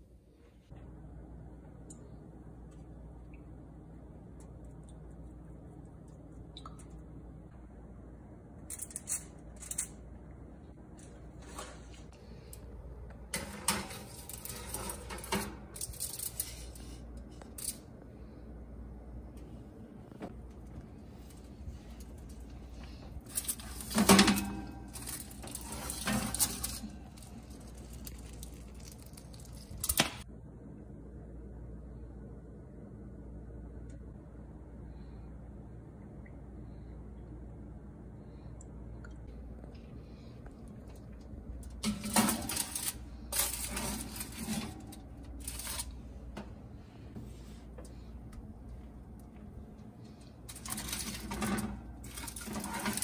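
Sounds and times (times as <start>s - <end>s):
baking tray scraping on oven rack: 13.3s - 16.8s, 23.4s - 27.3s, 41.8s - 45.9s, 50.5s - 53.0s.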